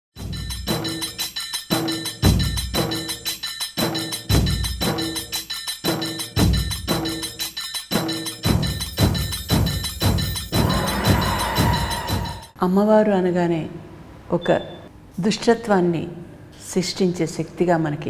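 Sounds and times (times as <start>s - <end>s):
percussion-driven music: 0.2s - 12.6s.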